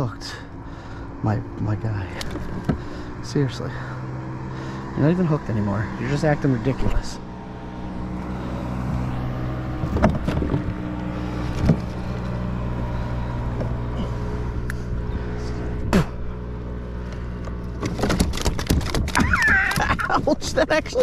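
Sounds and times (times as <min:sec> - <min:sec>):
low engine drone: 0:00.0 - 0:21.0
fish thrashing thumps and splashes: 0:17.8 - 0:20.0.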